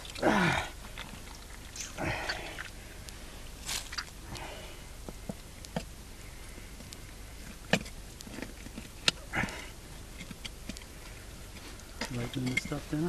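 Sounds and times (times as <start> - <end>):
wet clicks and squelches: 0.0 - 5.9, 6.8 - 11.2
rustle: 0.0 - 13.0.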